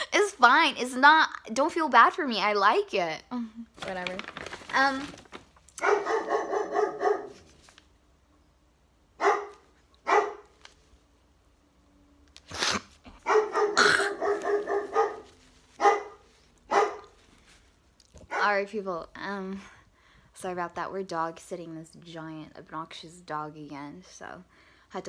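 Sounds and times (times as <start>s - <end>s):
large dog barking: 5.8s - 7.4s, 9.2s - 10.4s, 13.2s - 17.1s.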